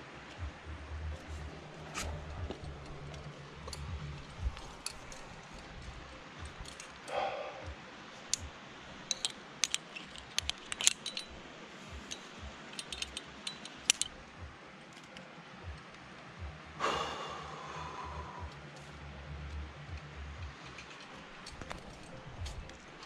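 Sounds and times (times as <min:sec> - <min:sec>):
climbing gear clicking and jingling: 0:01.2 - 0:07.2, 0:09.1 - 0:14.2, 0:20.5 - 0:23.0.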